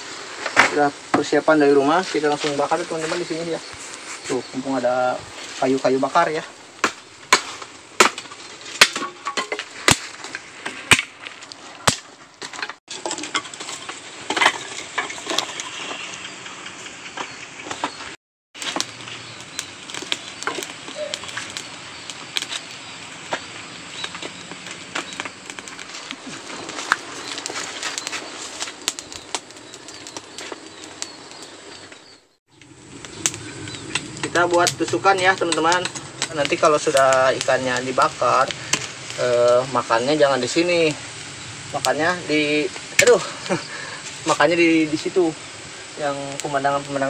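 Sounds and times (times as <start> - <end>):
leaves rustling: 0.0 - 47.0
firewood knocks and cracks: 6.8 - 15.9, 18.6 - 31.5, 32.6 - 39.6.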